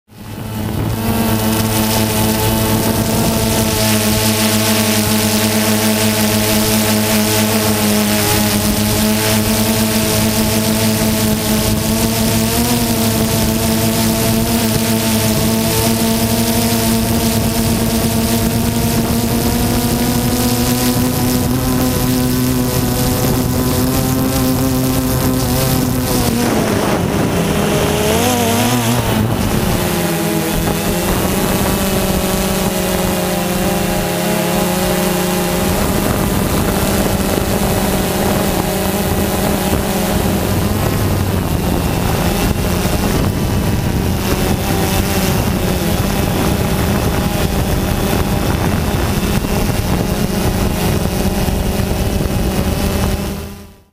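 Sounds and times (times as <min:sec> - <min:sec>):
drone propellers whining: 0:00.1 - 0:53.9
wind rushing over microphone: 0:00.1 - 0:53.9.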